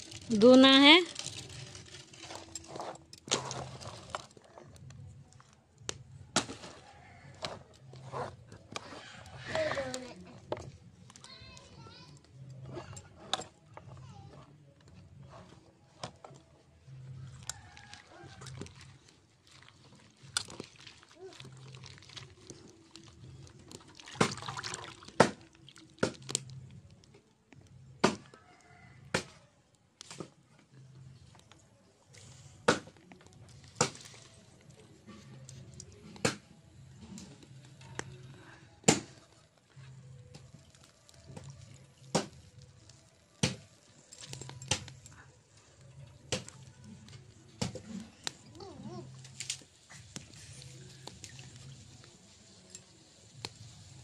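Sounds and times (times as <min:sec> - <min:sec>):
wood fire crackling and popping: 0:00.0 - 0:12.5, 0:16.0 - 0:29.4, 0:31.2 - 0:54.0
hand swishing flowers in water: 0:17.8 - 0:25.5
water sloshing in bowl: 0:17.8 - 0:26.2.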